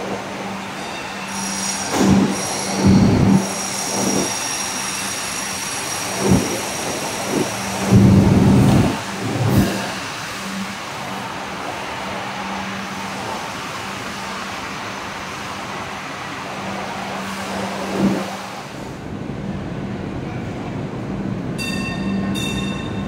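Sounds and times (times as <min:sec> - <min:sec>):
electric hum of light rail vehicle: 0:00.0 - 0:23.0
train rolling noise: 0:00.0 - 0:23.0.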